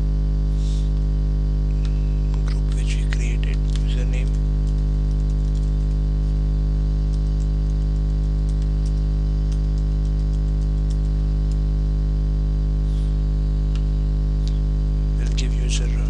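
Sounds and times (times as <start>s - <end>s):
loud electrical hum: 0.0s - 16.0s
keyboard typing clicks: 7.0s - 11.6s.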